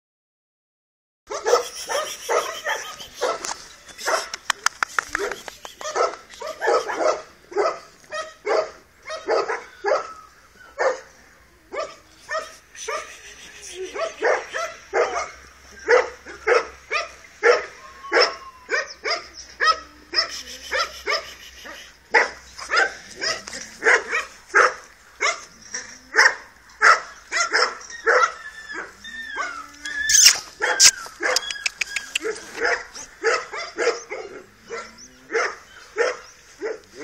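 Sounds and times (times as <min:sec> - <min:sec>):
dog barking: 0:01.3 - 0:04.4, 0:05.2 - 0:10.2, 0:10.8 - 0:11.1, 0:11.8 - 0:13.2, 0:13.9 - 0:25.5, 0:26.1 - 0:37.0
dog whining: 0:27.8 - 0:32.6.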